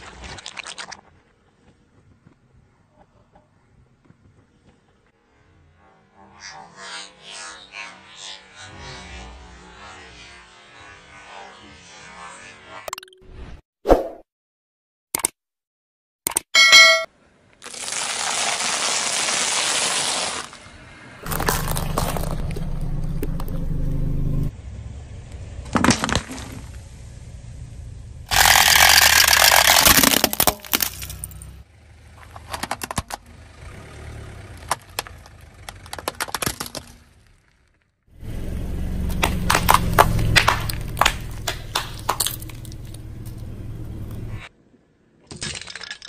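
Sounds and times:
click and chime: 16.3 - 17.1
plastic toy cracking and crunching: 17.6 - 20.5, 21.2 - 23.5, 28.3 - 31.4, 34.6 - 37.7, 39.1 - 43.0
car tyre crushing objects: 17.6 - 24.4, 25.6 - 26.8, 28.3 - 44.3
sharp crack: 39.1 - 43.5.

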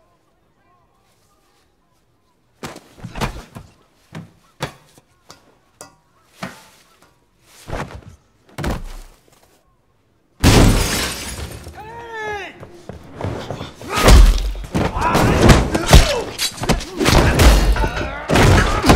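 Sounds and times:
loud breaking crash: 10.4 - 11.8.

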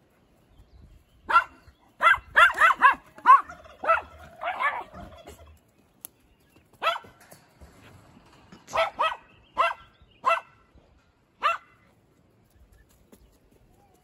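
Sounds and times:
puppy barking: 1.3 - 4.9, 6.8 - 7.2, 8.7 - 10.6, 11.4 - 11.8.

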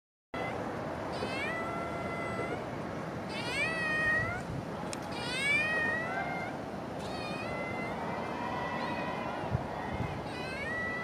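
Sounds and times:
cat meowing: 0.4 - 2.6, 3.3 - 4.4, 5.1 - 8.0, 10.2 - 11.0.

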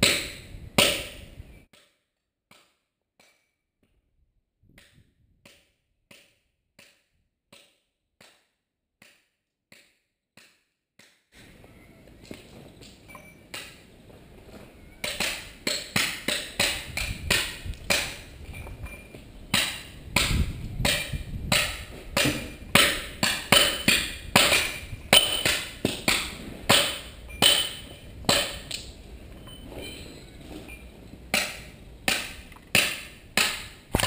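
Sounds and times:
hammer striking chisel on stone: 19.5 - 28.9, 31.3 - 34.0.

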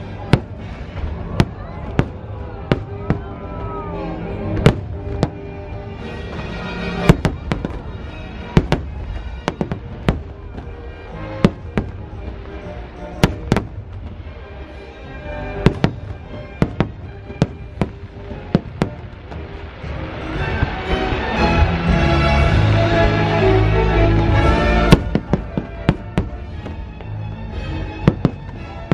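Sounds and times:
fireworks bursting: 0.0 - 28.9
music: 0.0 - 28.9.

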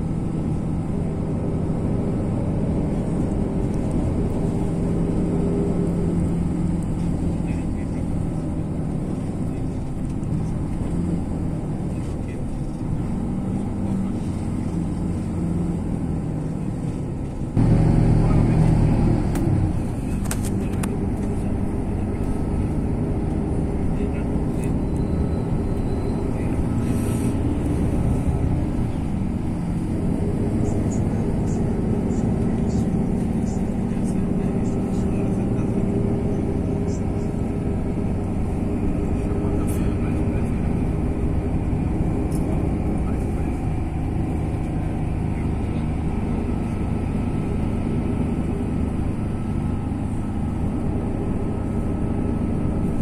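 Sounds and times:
vehicle engine and tyre rumble: 0.0 - 53.0.

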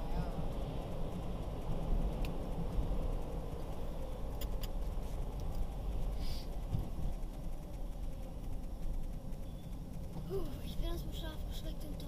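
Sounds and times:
car road and engine rumble: 0.0 - 12.0
light clicks: 4.2 - 5.7.

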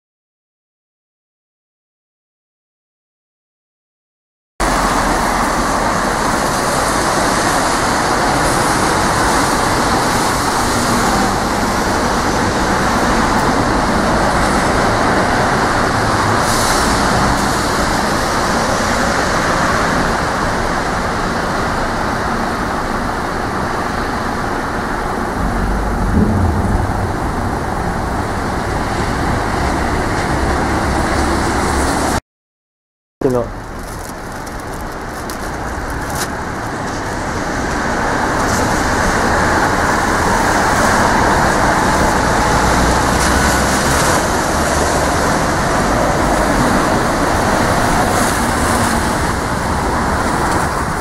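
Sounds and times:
tyres hissing on wet asphalt: 4.7 - 24.2.

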